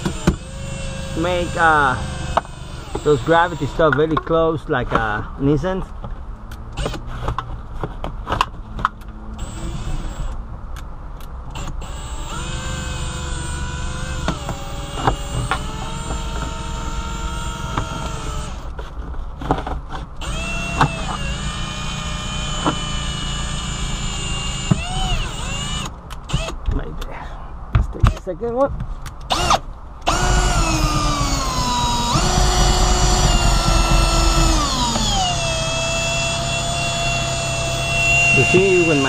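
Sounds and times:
drill motor whining: 0.0s - 4.0s, 6.8s - 7.0s, 9.4s - 10.4s, 11.5s - 18.7s, 20.2s - 26.6s, 29.3s - 39.0s.

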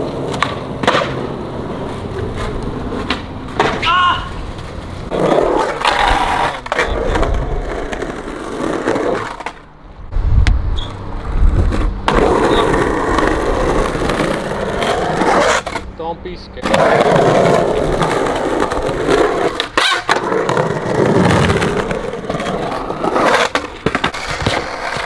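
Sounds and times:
skateboard clack: 0.0s - 9.7s, 16.6s - 25.0s
skateboard wheels rolling: 0.0s - 15.9s, 16.6s - 25.0s.

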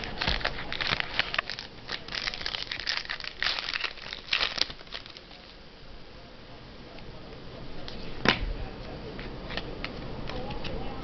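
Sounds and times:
card wrapping crinkling: 0.0s - 5.6s.

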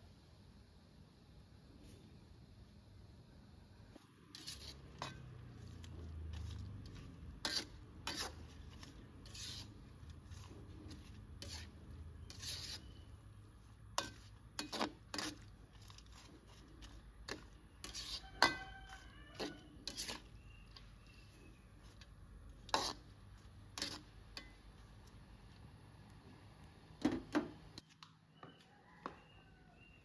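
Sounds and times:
metal skimmer scraping a wok: 4.2s - 24.9s.

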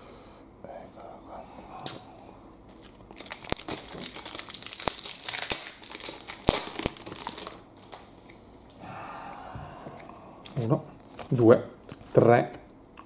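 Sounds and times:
foil wrapper crackling: 2.8s - 8.2s.

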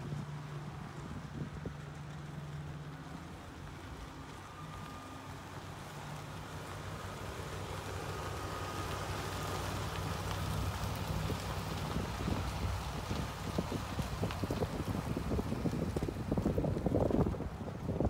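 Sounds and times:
wind noise on microphone: 0.0s - 2.2s, 10.1s - 18.0s
truck engine idling: 0.0s - 18.0s.

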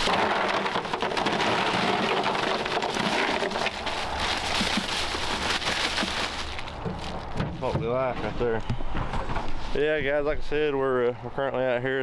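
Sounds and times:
ice cubes rattling into cooler: 0.0s - 7.7s.

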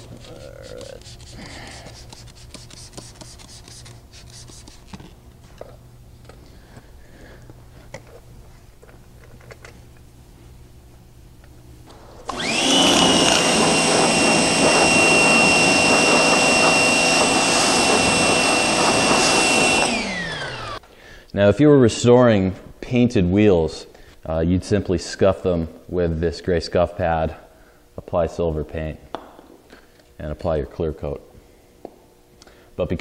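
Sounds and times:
pressure washer running: 12.2s - 20.8s.

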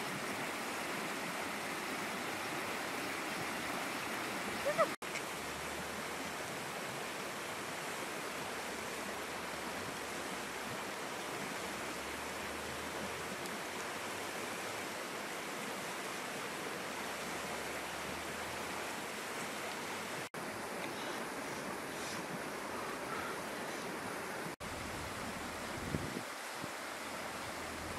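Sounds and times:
river rushing over rapids: 0.0s - 27.9s.

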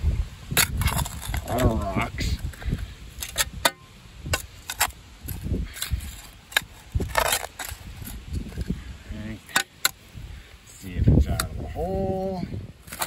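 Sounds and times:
spade digging rocky soil: 0.4s - 10.2s, 10.8s - 12.2s, 12.8s - 13.0s
spade scraping soil: 0.5s - 10.0s.

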